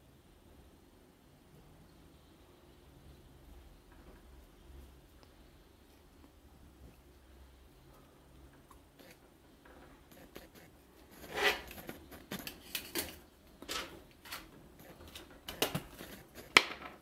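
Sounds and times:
plastic clicks and scrapes: 0:09.0 - 0:17.0.

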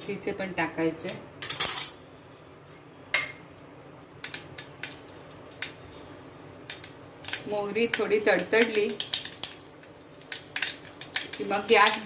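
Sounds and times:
mustard seeds popping in oil: 0:04.2 - 0:12.0.

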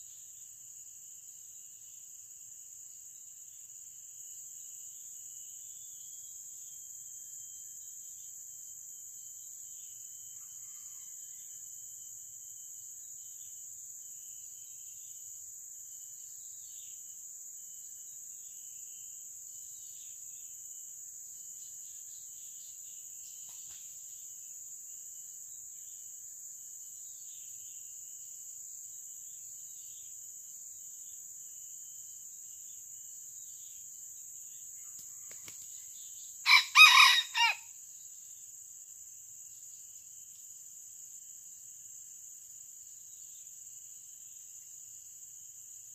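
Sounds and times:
rooster crowing: 0:10.5 - 0:11.6, 0:36.4 - 0:37.7
high-pitched insect drone: 0:27.0 - 0:45.9.

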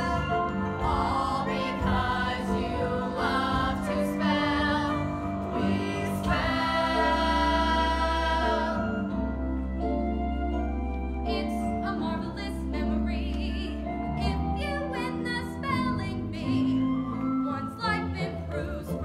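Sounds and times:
group of voices singing: 0:00.0 - 0:09.3.

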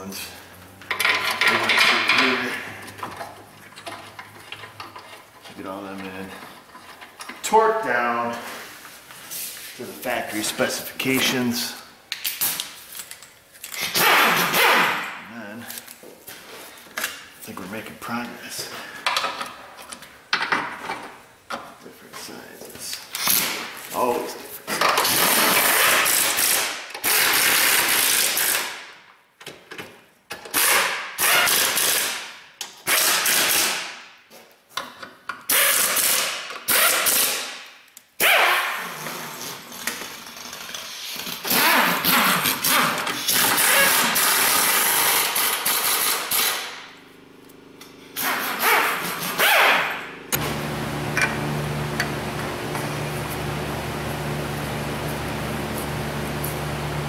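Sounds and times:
steady machine hum: 0:43.5 - 0:57.0.

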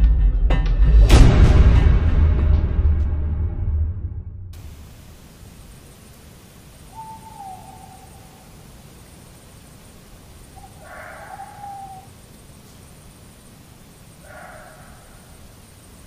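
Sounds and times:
faint steady hiss: 0:04.6 - 0:16.0
owl hooting: 0:04.6 - 0:16.0.

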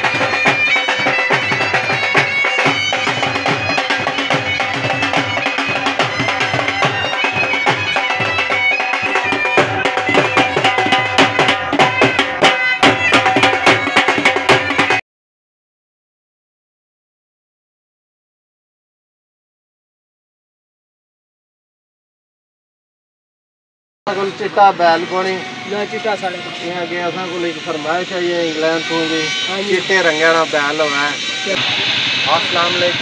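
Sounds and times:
bagpipes playing over drone: 0:00.0 - 0:15.0, 0:24.1 - 0:33.0
fast dhol drumming: 0:00.0 - 0:15.0.

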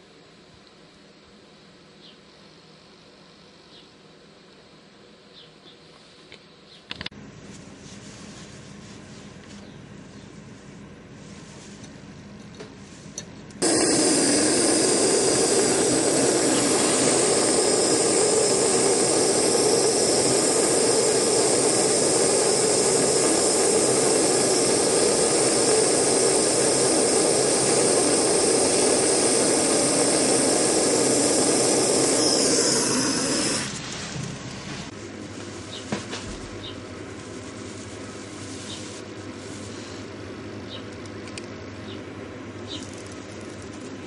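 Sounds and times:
soldering torch hissing: 0:13.6 - 0:34.9.

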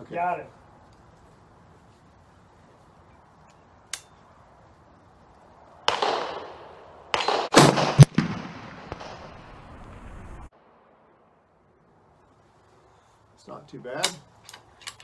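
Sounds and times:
rifle gunshots: 0:05.9 - 0:09.4.

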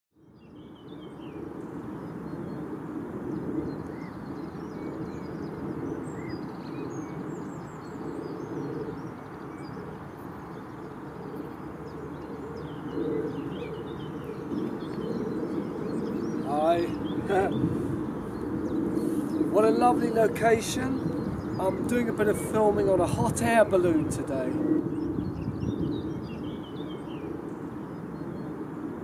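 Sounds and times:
birds chirping and singing: 0:03.6 - 0:28.5.

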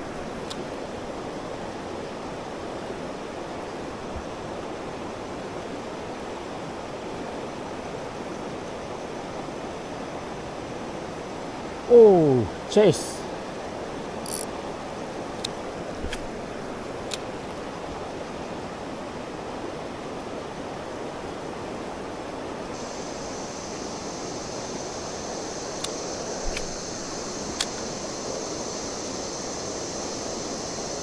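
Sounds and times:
creek water running over rocks: 0:00.0 - 0:31.0
steady high hiss: 0:00.0 - 0:31.0
faint clicks: 0:25.8 - 0:26.8, 0:27.5 - 0:27.8.

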